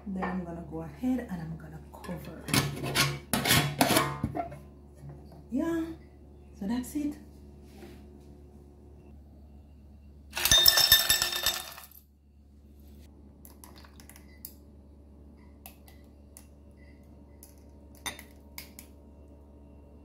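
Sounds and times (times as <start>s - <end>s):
ice cubes clattering in glass: 10.4s - 12.0s.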